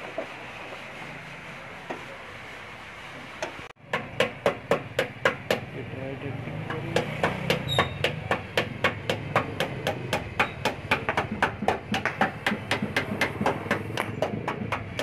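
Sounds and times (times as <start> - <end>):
hammer tapping sheet metal: 6.6 - 15.0.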